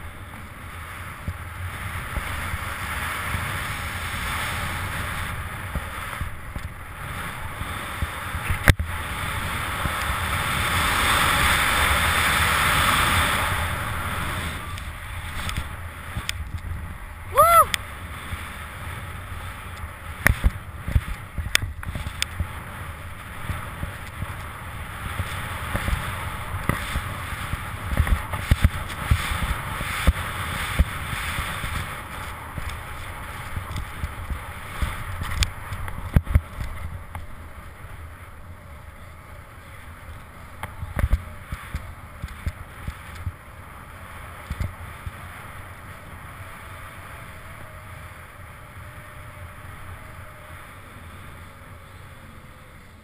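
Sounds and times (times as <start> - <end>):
wind rumbling on microphone: 0.0 - 53.0
skis hissing through snow: 7.0 - 16.2, 21.9 - 35.7.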